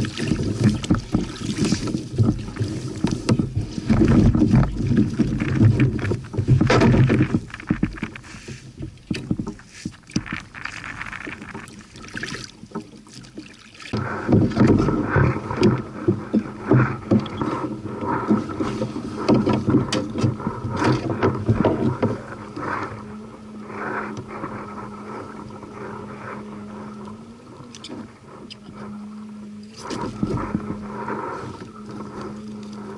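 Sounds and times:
knocks and scrapes on plastic hull: 0.0s - 22.9s
reeds rubbing against kayak: 0.0s - 32.9s.

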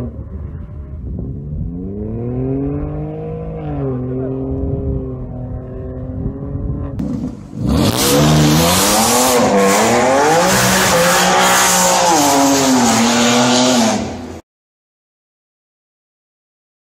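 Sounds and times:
car engine revving hard: 7.0s - 14.4s.

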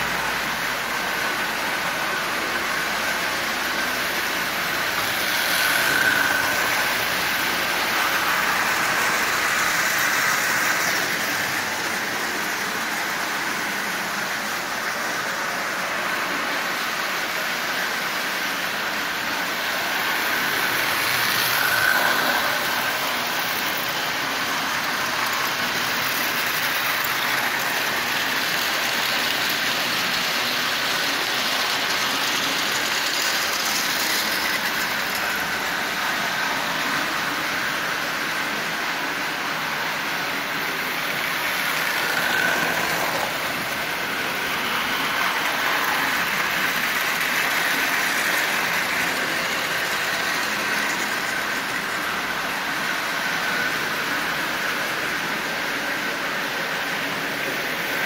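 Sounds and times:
toy train motor whirring: 0.0s - 58.0s
wheels clattering over rails: 17.5s - 58.0s.

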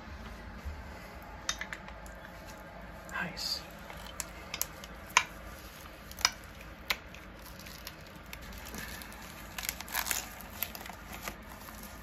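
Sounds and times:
fabric and plastic crinkling: 3.7s - 12.0s.

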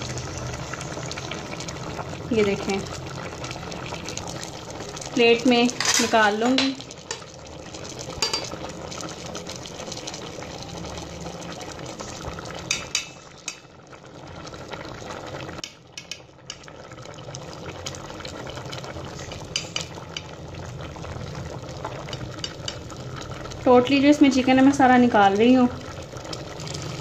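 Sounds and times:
pot simmering and bubbling: 0.0s - 27.0s
metal fork clinking on pot: 8.2s - 8.5s.

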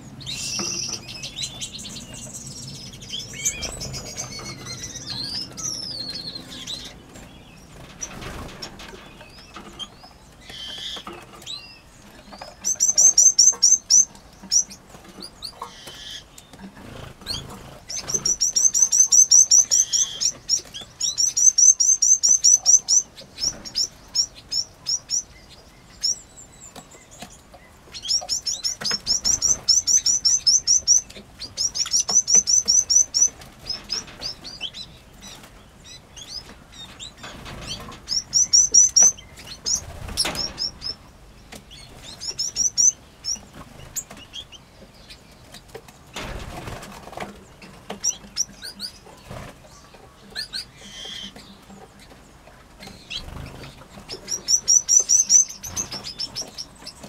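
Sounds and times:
finches and canaries chirping: 0.0s - 57.0s.

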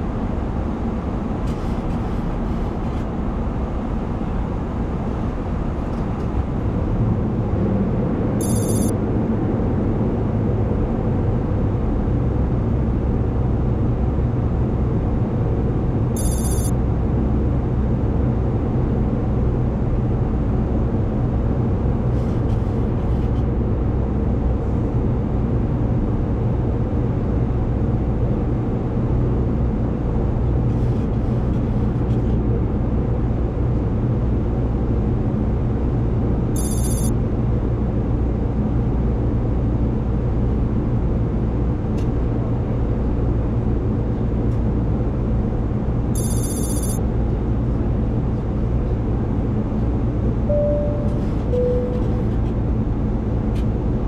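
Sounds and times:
airflow and engine rumble: 0.0s - 54.0s
short high ringing: 50.5s - 52.4s.

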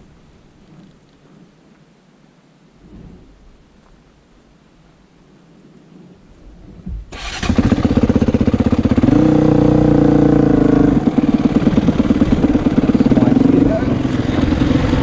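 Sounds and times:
motorcycle engine revving: 7.1s - 15.0s.

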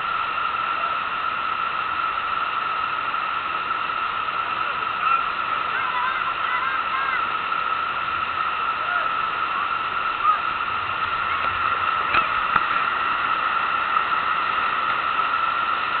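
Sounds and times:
rushing sheet of water: 0.0s - 16.0s.

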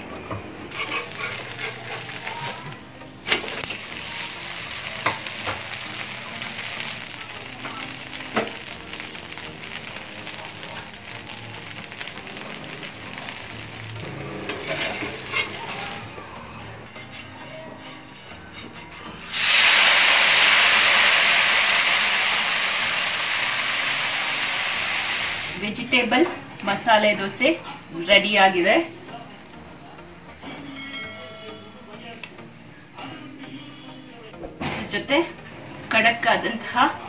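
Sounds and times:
batter sizzling on a griddle: 0.7s - 16.2s, 18.9s - 25.7s.

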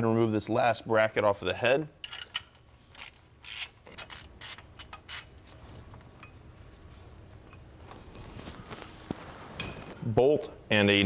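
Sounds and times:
ratchet wrench clicking: 2.9s - 5.3s
faint handling noise: 5.4s - 10.0s.

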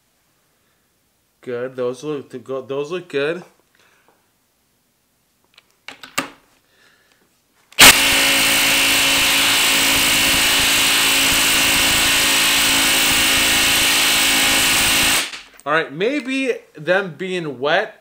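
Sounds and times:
impact driver hammering: 7.8s - 15.5s.

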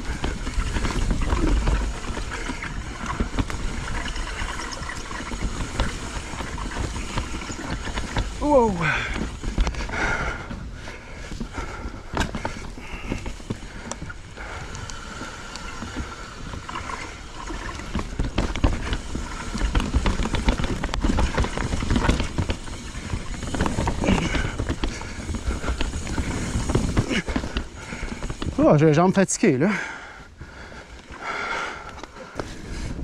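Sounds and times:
bike knocking and rattling: 0.0s - 33.0s
bike tyres rumbling over dirt: 0.0s - 33.0s.

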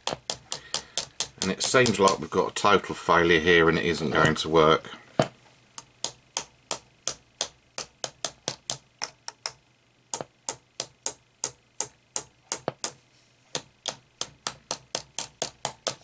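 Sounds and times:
plastic tool tapping clicks: 0.0s - 2.2s, 5.8s - 16.0s.

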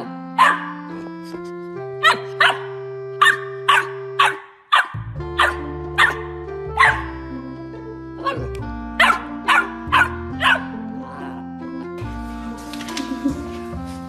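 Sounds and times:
background music with held chords: 0.0s - 14.0s
puppy barking: 0.4s - 0.9s, 2.0s - 7.2s, 8.2s - 10.9s.

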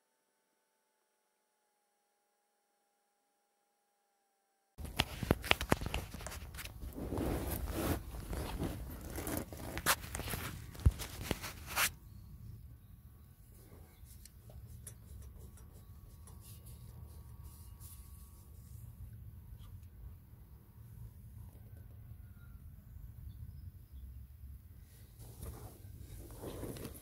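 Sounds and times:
scraping: 4.8s - 12.0s, 25.3s - 27.0s.

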